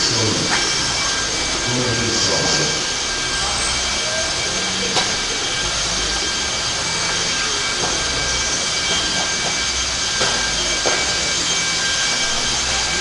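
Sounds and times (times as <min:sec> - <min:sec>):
high-pitched electric motor whine: 0:00.0 - 0:13.0.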